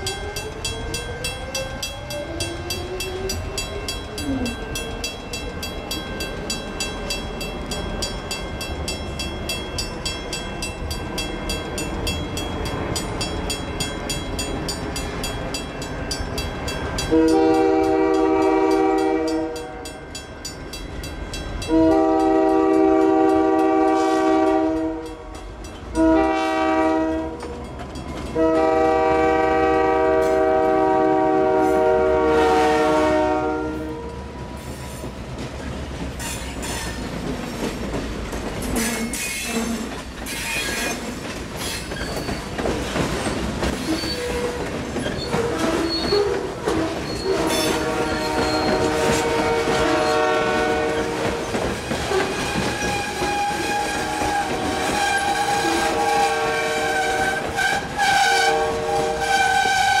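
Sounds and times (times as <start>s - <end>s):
train air horn chord: 17.1s - 19.9s, 21.7s - 25.3s, 25.9s - 27.4s, 28.4s - 34.2s, 47.2s - 51.5s, 52.4s - 60.0s
wheels clicking over rail joints: 34.1s - 56.3s
high-pitched wheel squeal: 41.6s - 42.5s, 43.8s - 49.0s.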